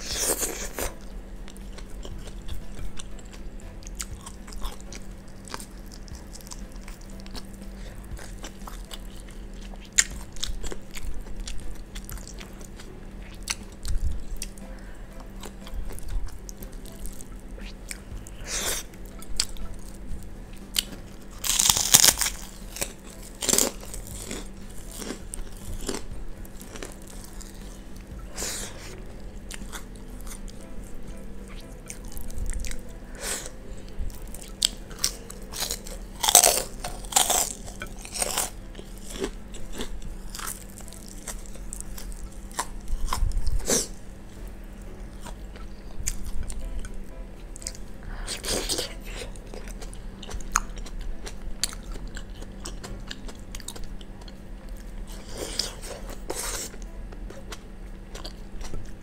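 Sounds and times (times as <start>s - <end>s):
person chewing: 0.0s - 59.0s
crunchy bites: 20.8s - 26.0s, 34.4s - 43.9s.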